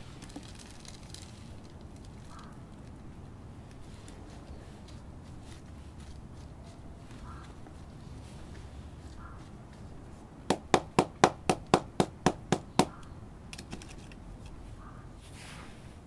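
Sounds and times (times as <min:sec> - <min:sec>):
plastic plant pot tapping: 0:10.5 - 0:13.1.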